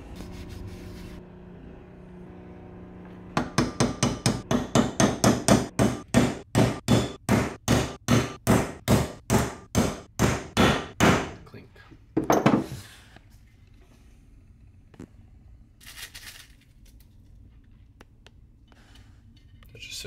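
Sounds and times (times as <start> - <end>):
hammer striking metal: 3.4 - 11.4.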